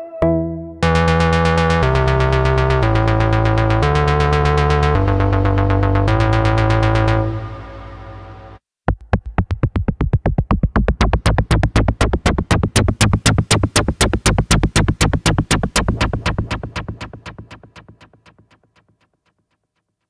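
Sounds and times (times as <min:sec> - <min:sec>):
synthesizer bass chord: 0:00.0 - 0:08.6, 0:09.6 - 0:18.6
fast synthesizer note sequence: 0:09.0 - 0:18.8.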